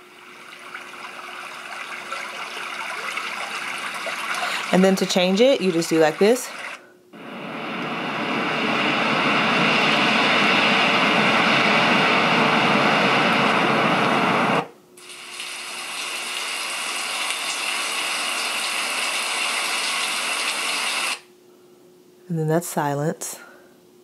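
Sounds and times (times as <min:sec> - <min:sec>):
softer steady noise: 0:00.0 - 0:15.4
white noise from speaker: 0:00.0 - 0:15.7.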